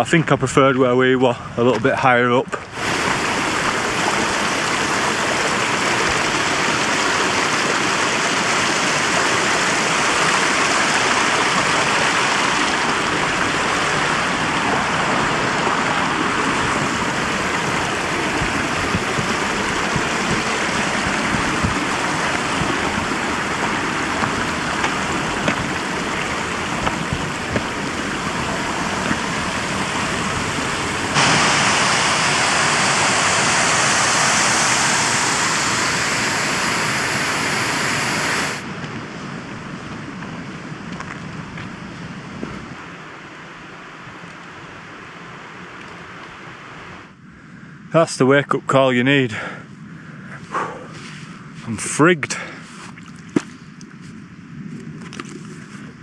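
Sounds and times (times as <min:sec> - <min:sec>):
rushing mountain stream: 0:01.7 - 0:40.8.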